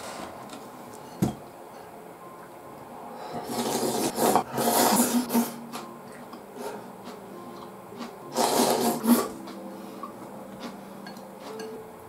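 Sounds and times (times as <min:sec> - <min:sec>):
person slurping noodles: 0:03.4 - 0:05.6, 0:08.3 - 0:09.4.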